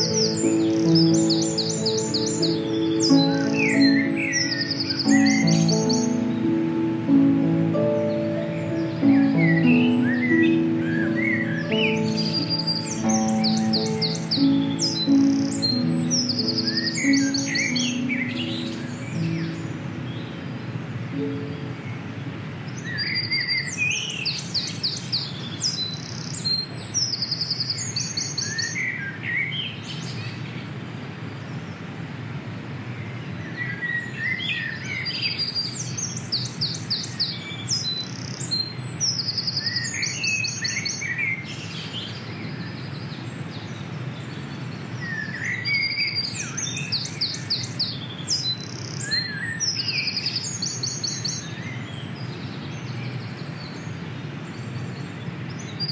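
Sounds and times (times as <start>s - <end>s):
songbird trilling: 0.0s - 20.5s.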